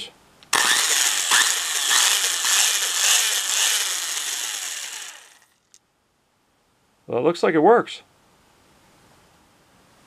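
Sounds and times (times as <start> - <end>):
electric drill whining: 0.5 - 5.5.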